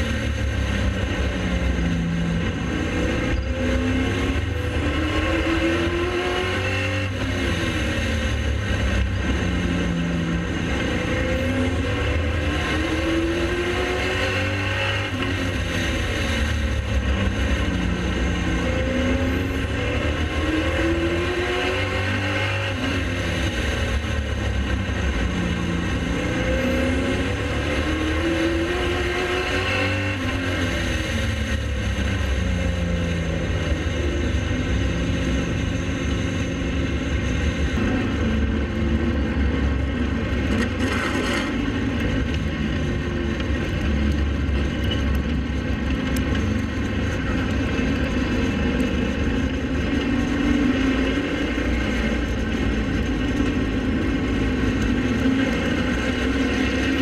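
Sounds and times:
race car engines accelerating: 0.0s - 57.0s.

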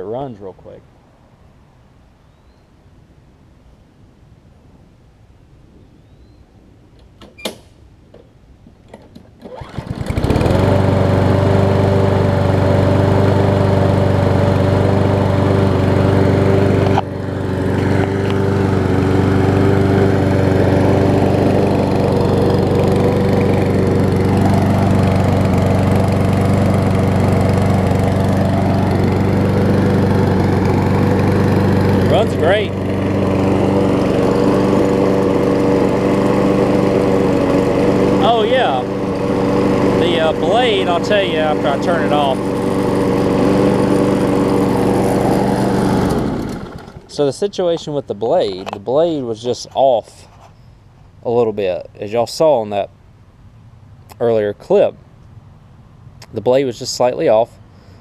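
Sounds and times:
lawn mower engine running: 8.9s - 50.2s.

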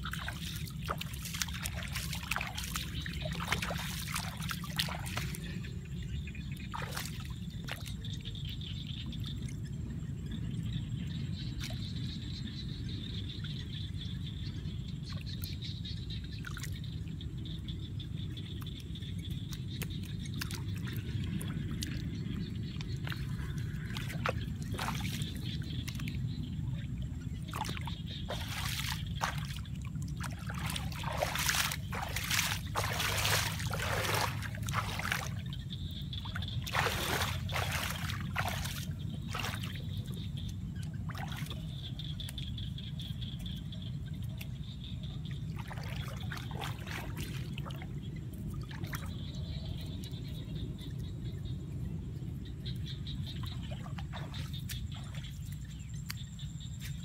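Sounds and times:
hands splashing in muddy water: 0.0s - 5.7s, 6.6s - 8.0s, 19.5s - 26.4s, 27.4s - 42.7s, 45.4s - 49.3s, 53.3s - 57.0s.

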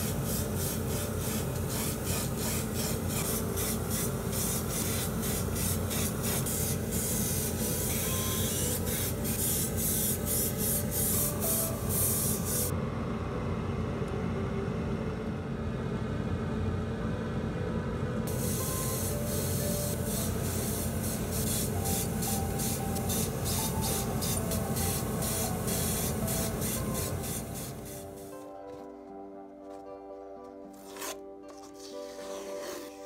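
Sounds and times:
airbrush spraying: 0.0s - 12.7s, 18.3s - 28.4s, 31.0s - 33.0s.

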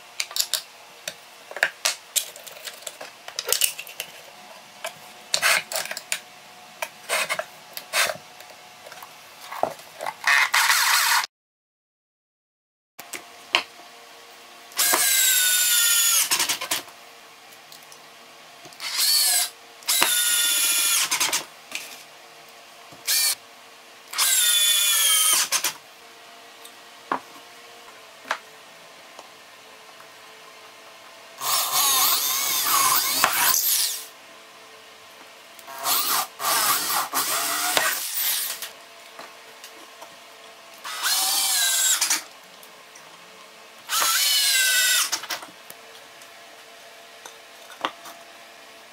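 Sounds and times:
cordless drill driving screws: 10.3s - 11.3s, 14.8s - 16.8s, 18.8s - 21.5s, 23.1s - 23.4s, 24.2s - 25.8s, 31.4s - 34.1s, 35.7s - 38.7s, 40.9s - 42.2s, 43.9s - 45.4s.

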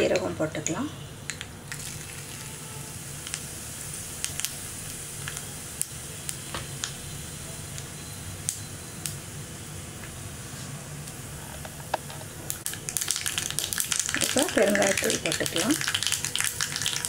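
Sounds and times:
seeds sizzling in hot oil: 0.0s - 17.0s
mustard seeds popping: 11.1s - 17.0s.

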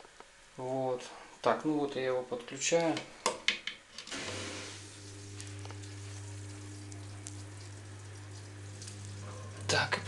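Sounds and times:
water churning with fizzing hiss: 4.1s - 9.0s
pump motor humming: 4.1s - 10.0s.

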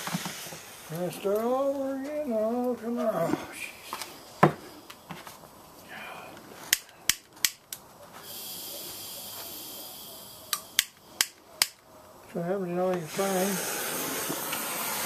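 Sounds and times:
gas hissing from valve: 0.0s - 1.4s, 8.2s - 11.8s, 13.0s - 15.0s
torch igniter clicks: 6.7s - 7.9s, 10.5s - 11.8s.

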